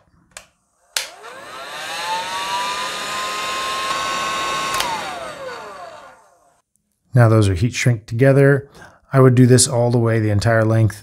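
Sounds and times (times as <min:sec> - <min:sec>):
heat gun fan whine: 0:00.9 - 0:06.6
heat gun switch click: 0:01.0 - 0:01.3, 0:03.7 - 0:05.5.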